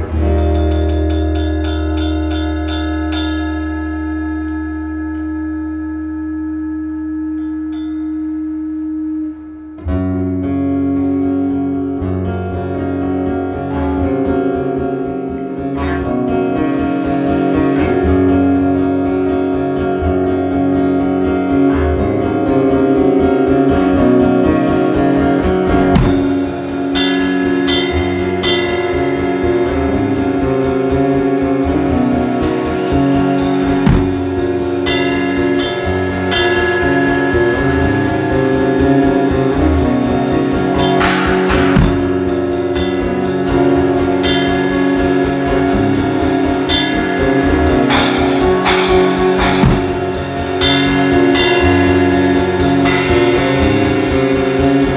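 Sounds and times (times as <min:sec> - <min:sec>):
electric guitar chords: 0:00.0 - 0:54.9
cymbal washes: 0:32.5 - 0:54.9
drum beat: 0:33.8 - 0:34.6, 0:40.8 - 0:42.3, 0:47.6 - 0:52.0.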